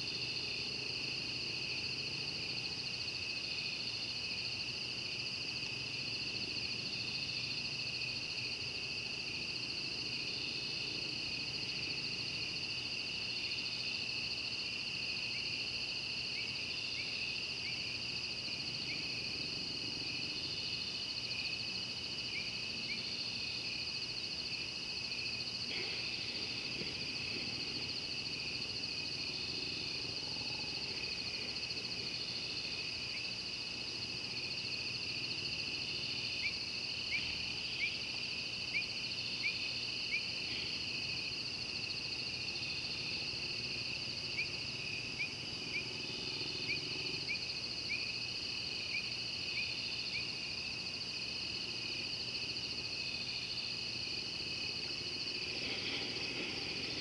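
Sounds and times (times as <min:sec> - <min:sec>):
insect chirps: 0:00.0 - 0:57.0
insects trilling: 0:00.0 - 0:57.0
low insect chirps: 0:01.2 - 0:57.0.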